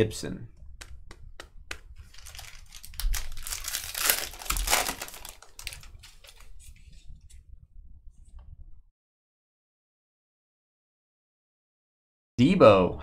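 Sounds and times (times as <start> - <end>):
foil wrapper tearing and crinkling: 2.0 - 6.8.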